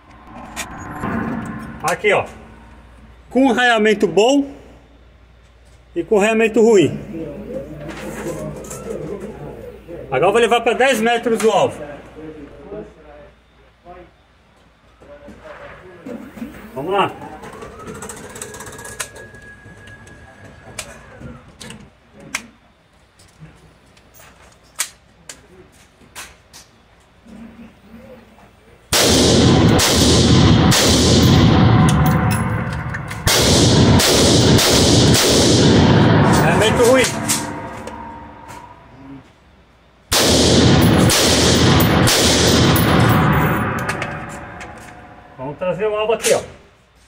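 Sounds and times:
gunshots echoing indoors: 0:28.9 - 0:38.9, 0:40.1 - 0:45.4.

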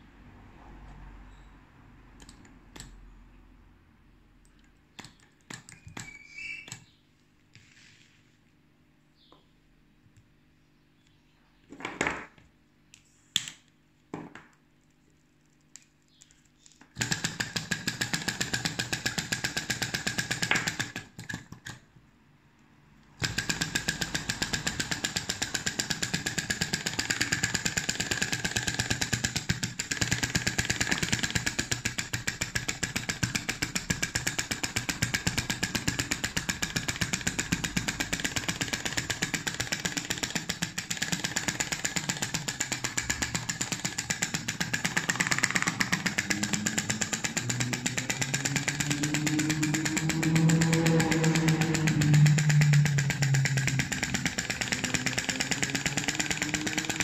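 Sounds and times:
sharp clicks: 0:02.2 - 0:03.0, 0:32.6 - 0:57.0
model engine clattering: 0:17.0 - 0:21.4, 0:23.2 - 0:57.0.

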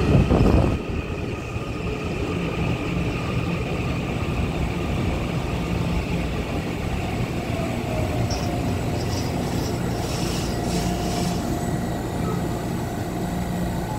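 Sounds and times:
train rumbling to a stop: 0:00.0 - 0:13.9
short high brake hisses: 0:09.0 - 0:11.7.

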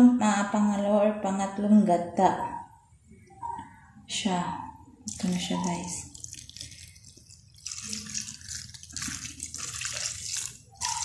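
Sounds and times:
liquid pouring and splashing: 0:05.1 - 0:11.0.

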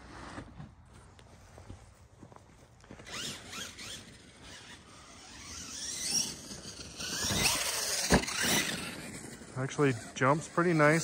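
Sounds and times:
electric motor whining: 0:03.0 - 0:11.0.

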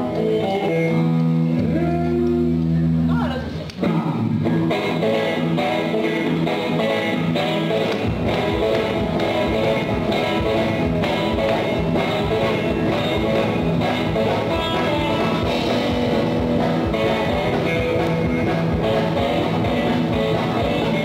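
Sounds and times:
live rock and roll band: 0:00.0 - 0:21.0.

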